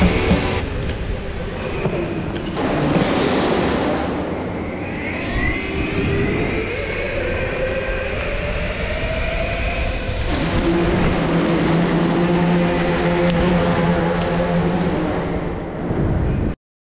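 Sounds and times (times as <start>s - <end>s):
electric motor whine: 10.1s - 15.5s.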